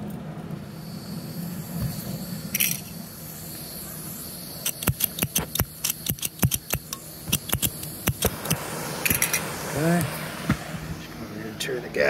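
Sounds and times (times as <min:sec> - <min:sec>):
spark striker clicking: 0:04.6 - 0:10.6.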